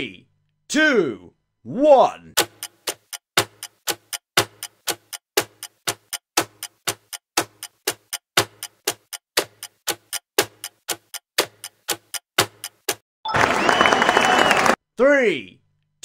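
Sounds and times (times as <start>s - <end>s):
fast clock-like ticking: 2.4s - 13.0s.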